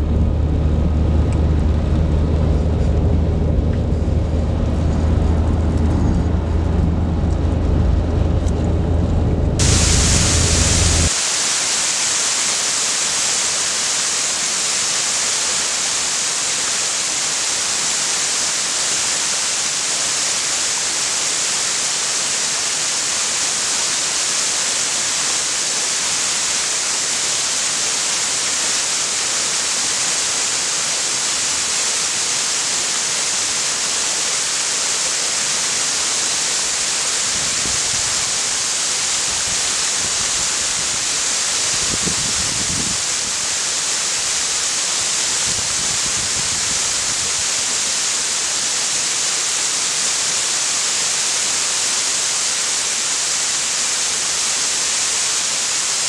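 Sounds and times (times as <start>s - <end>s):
car road and engine rumble: 0.0s - 11.1s
waterfall pouring into pool: 9.6s - 56.0s.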